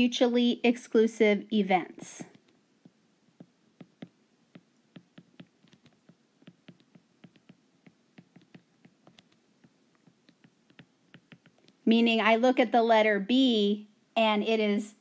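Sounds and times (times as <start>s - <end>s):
stylus tapping on glass screen: 2.3s - 11.8s.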